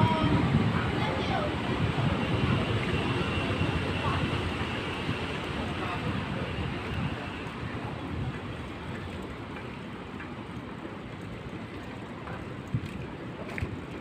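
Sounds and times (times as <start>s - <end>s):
wind on microphone: 0.0s - 9.5s
background traffic: 0.0s - 14.0s.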